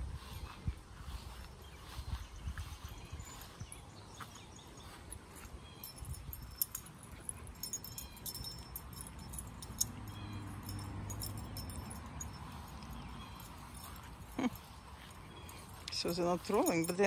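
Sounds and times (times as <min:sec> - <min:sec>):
dogs scuffling on grass: 0:00.0 - 0:09.8, 0:11.1 - 0:17.0
collar tags jingling: 0:02.8 - 0:17.0.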